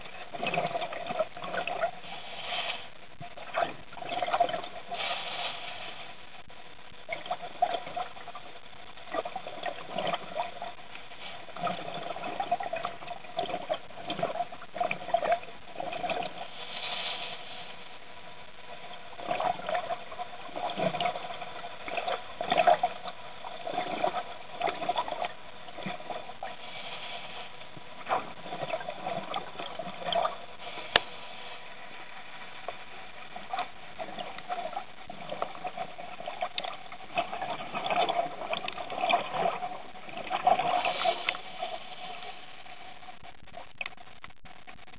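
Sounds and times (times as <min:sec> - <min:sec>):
bubbling and popping: 0:00.0 - 0:02.0, 0:02.9 - 0:05.1, 0:06.1 - 0:16.5, 0:18.6 - 0:26.6, 0:27.6 - 0:31.2, 0:31.8 - 0:44.9
underwater hiss: 0:01.8 - 0:02.9, 0:04.8 - 0:06.2, 0:16.3 - 0:18.0, 0:26.1 - 0:27.6, 0:30.6 - 0:32.6, 0:40.6 - 0:42.6.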